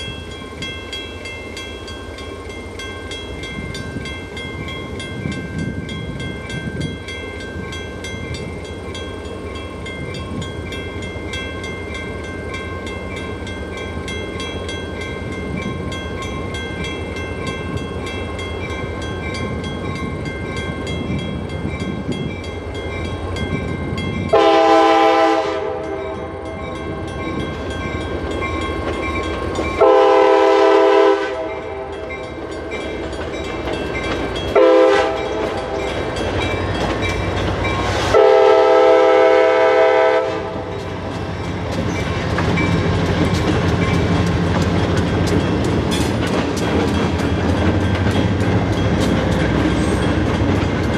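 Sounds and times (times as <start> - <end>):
diesel train rumbling: 0.0 - 50.9
train air horn blasts: 24.3 - 26.4, 29.8 - 31.9, 34.6 - 35.8, 37.9 - 40.7.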